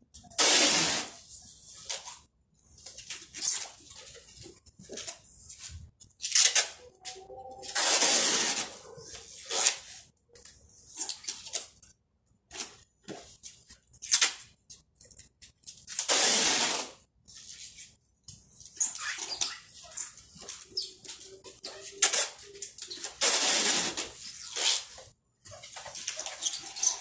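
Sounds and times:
packing tape ripping off roll: 0.3 - 1.2, 7.6 - 9.9, 15.9 - 17.0, 21.8 - 25.0.

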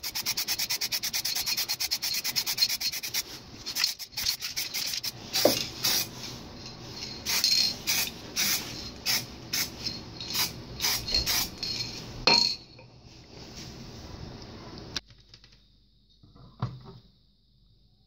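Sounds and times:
aerosol spray can hissing: 0.0 - 6.1, 7.0 - 11.7.

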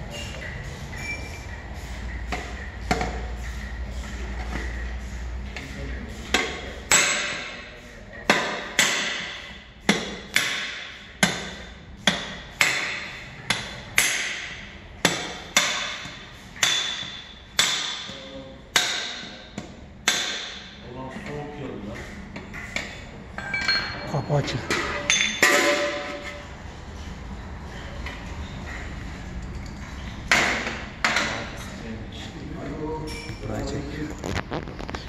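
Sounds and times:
hammer striking steel punch: 6.3 - 7.6, 8.3 - 20.8.

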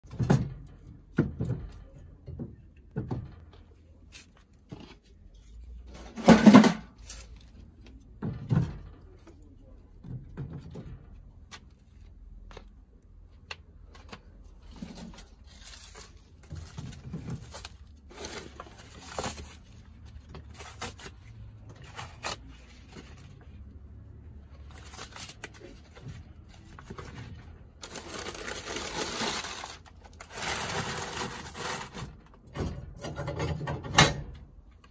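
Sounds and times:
rustling: 14.1 - 23.7, 24.4 - 32.2.

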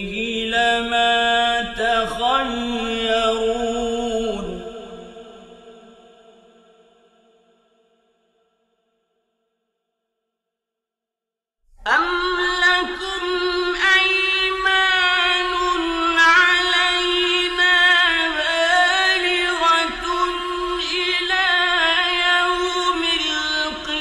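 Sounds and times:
man chanting melodic recitation: 0.0 - 4.8, 12.0 - 24.0.

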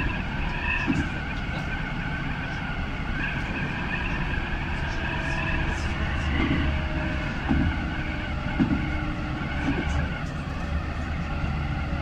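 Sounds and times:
tram wheels rumbling on rails: 0.0 - 12.0
dull knocks: 7.4 - 7.9, 8.5 - 9.0.

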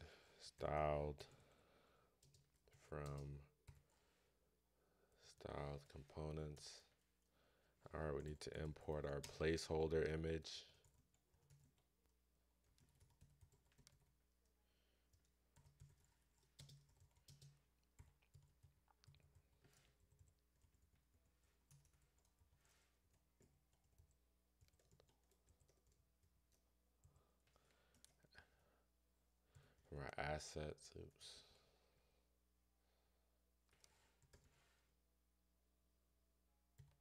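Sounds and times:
computer keyboard typing: 2.2 - 3.9, 10.8 - 11.9, 12.6 - 14.2, 15.1 - 28.2, 36.8 - 37.0.

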